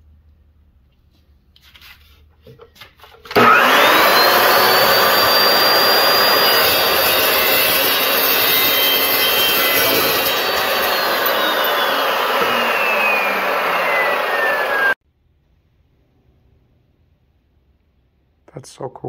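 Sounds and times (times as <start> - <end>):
chop saw motor whine: 3.3 - 15.0
saw blade grinding steel tube: 3.4 - 15.0.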